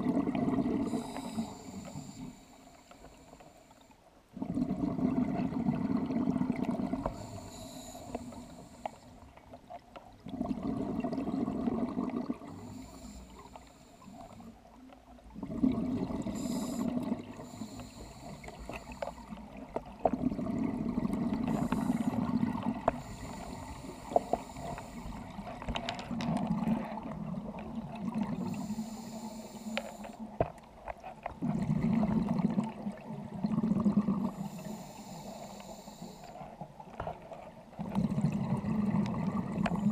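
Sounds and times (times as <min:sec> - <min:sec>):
bubbles gurgling underwater: 0:00.0 - 0:01.5, 0:04.3 - 0:07.7, 0:10.1 - 0:12.9, 0:14.4 - 0:28.8, 0:30.2 - 0:34.7, 0:37.6 - 0:39.9
diver breathing through regulator: 0:00.6 - 0:05.1, 0:06.7 - 0:09.3, 0:10.9 - 0:14.5, 0:15.5 - 0:19.6, 0:20.4 - 0:26.0, 0:28.2 - 0:30.3, 0:34.0 - 0:36.6.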